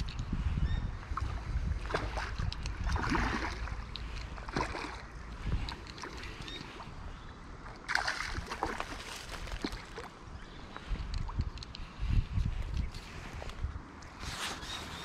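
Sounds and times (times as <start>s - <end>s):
fish splashing and thrashing: 1.2s - 6.9s, 7.7s - 10.2s.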